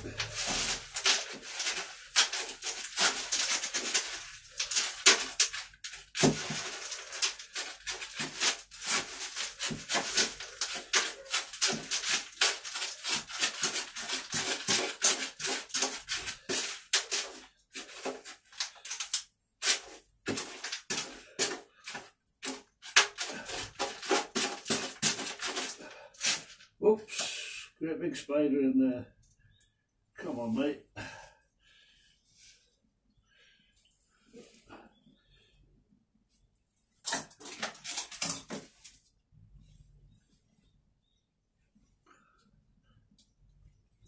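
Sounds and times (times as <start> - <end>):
hands rustling compost in bucket: 0.0 - 26.8.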